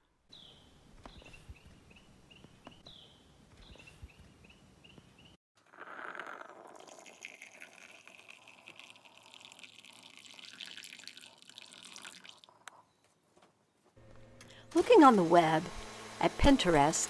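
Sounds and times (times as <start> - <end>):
liquid pouring into a mug: 6.2 - 12.7.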